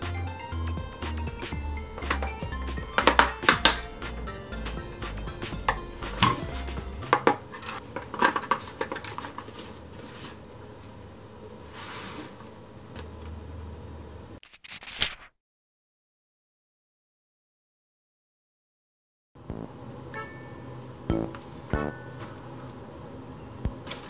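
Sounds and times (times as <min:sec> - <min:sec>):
soft rustle: 0:11.6 - 0:12.5.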